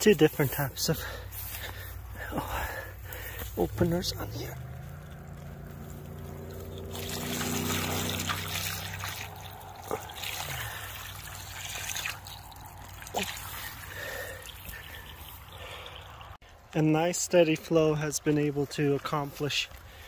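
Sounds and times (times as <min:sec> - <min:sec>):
grass brushing microphone: 0:00.0 - 0:15.8
low hum: 0:01.8 - 0:16.4
water trickling: 0:04.0 - 0:16.4.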